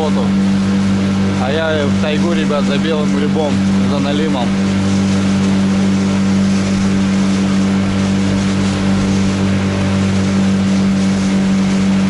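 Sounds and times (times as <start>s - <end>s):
outboard motor humming: 0.0s - 12.0s.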